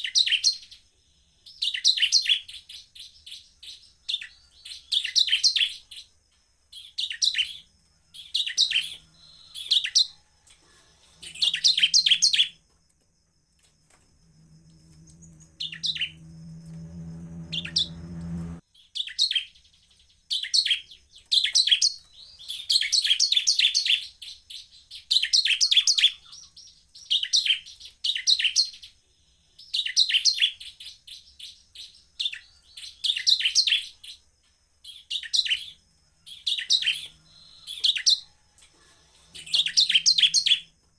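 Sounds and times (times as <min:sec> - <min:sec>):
low hum: 0:14.0 - 0:18.6
bird singing high trilled phrases: 0:14.8 - 0:29.0, 0:39.4 - 0:40.7.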